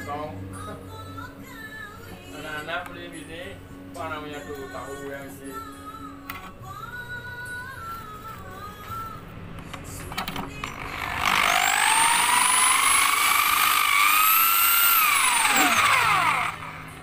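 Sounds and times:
power tool whirring: 10.2 - 17.0.

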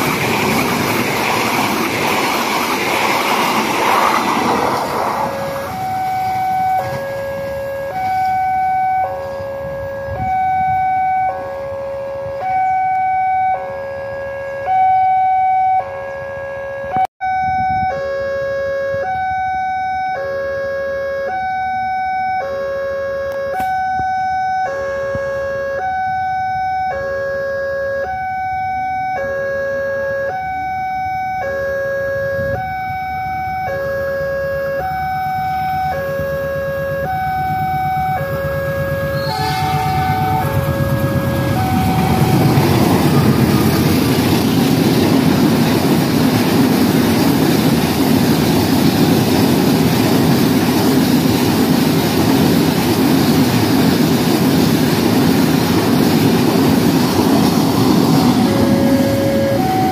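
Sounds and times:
train cars rumbling on rails: 0.0 - 12.8, 30.0 - 59.9
level crossing alarm two tones: 5.2 - 44.0, 58.2 - 59.9.

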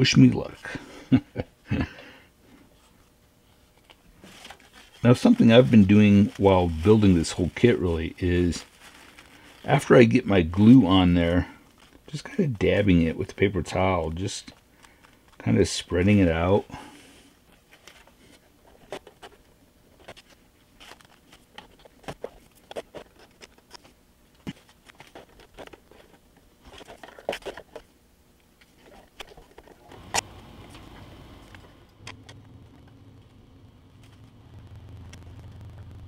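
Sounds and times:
low steady hum: 0.0 - 36.0.

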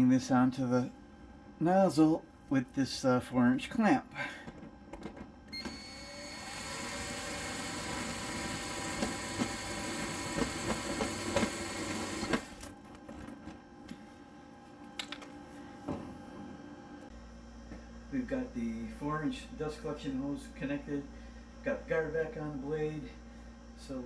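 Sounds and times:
power drill running: 5.5 - 12.7.

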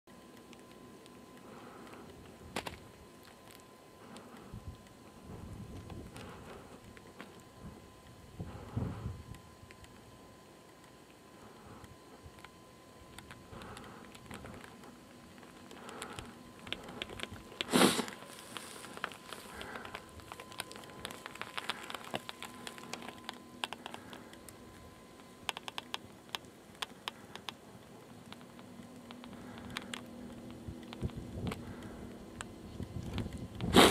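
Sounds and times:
light clicking and crackling: 0.1 - 33.9.

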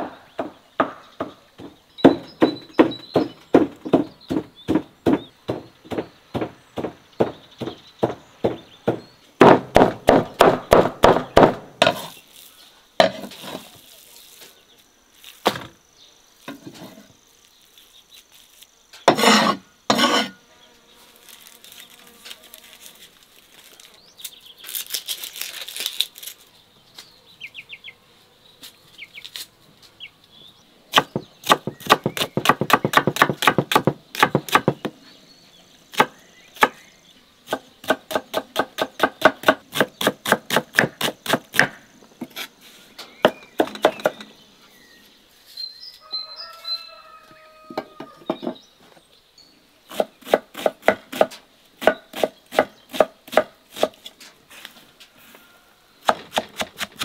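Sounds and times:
knife chopping on wooden board: 0.4 - 12.1, 30.9 - 34.9, 37.5 - 42.5, 49.9 - 54.0
faint insect buzz: 11.2 - 57.0.

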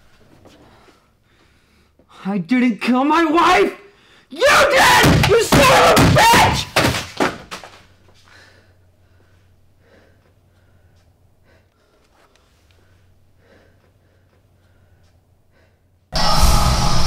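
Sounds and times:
man breathing hard: 0.5 - 2.2, 3.9 - 4.3, 8.2 - 16.1
man shouting: 2.4 - 6.9.

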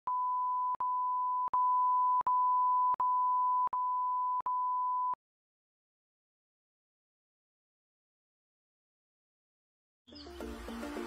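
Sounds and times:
electronic beep tone: 0.1 - 5.2.

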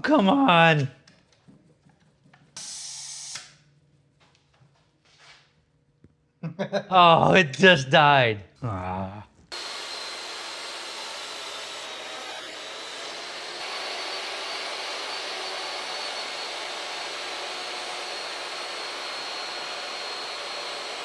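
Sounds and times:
shop machine rushing whine: 9.5 - 21.0.

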